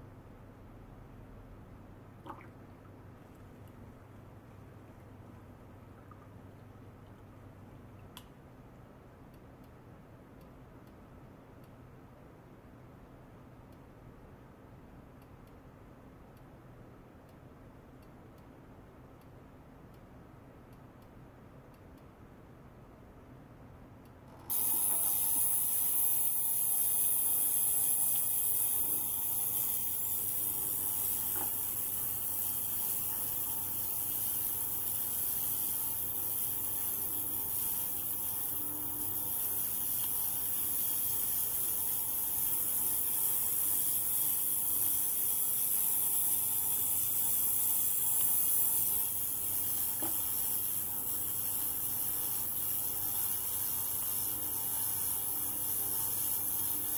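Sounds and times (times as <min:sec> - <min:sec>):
low pump hum: 0:00.1 - 0:08.2
steady high hiss: 0:24.4 - 0:56.9.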